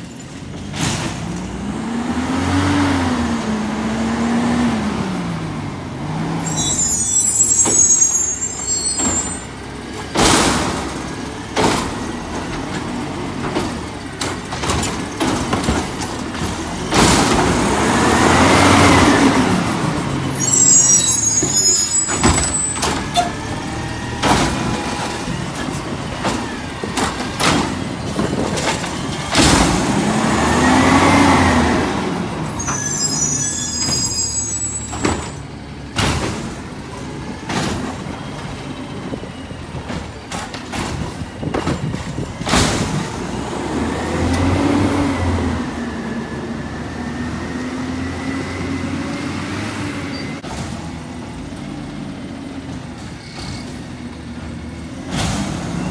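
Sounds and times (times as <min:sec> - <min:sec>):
air brakes hissing: 0:06.4 - 0:09.5, 0:32.4 - 0:35.4
garbage truck engine revving: 0:10.2 - 0:35.3.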